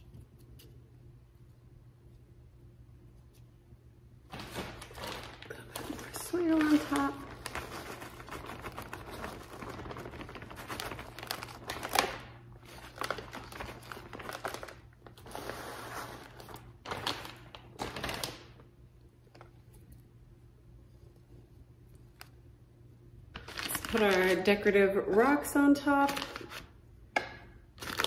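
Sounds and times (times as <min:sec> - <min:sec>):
plastic bag crinkling: 0:04.3 - 0:18.7, 0:23.3 - 0:24.7, 0:26.0 - 0:26.8, 0:27.7 - 0:28.0.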